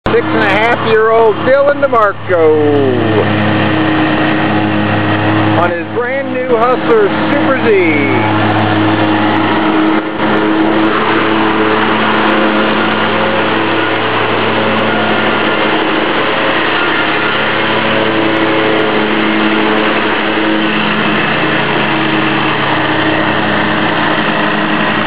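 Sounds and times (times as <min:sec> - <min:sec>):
lawn mower running: 0:00.0 - 0:25.0.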